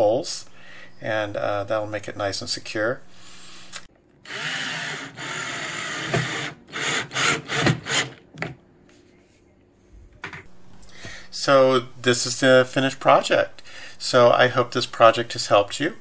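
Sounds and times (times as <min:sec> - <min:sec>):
cordless drill driving a screw: 0:04.2 - 0:08.2.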